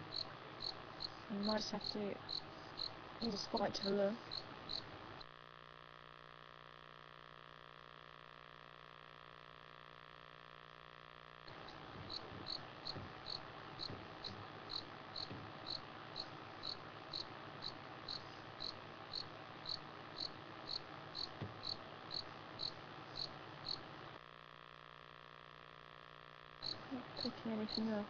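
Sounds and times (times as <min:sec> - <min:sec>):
cricket chirping: 0:00.0 - 0:04.9, 0:11.5 - 0:23.9, 0:26.6 - 0:27.9
steady background hiss: 0:00.0 - 0:05.3, 0:11.4 - 0:24.2, 0:26.6 - 0:28.0.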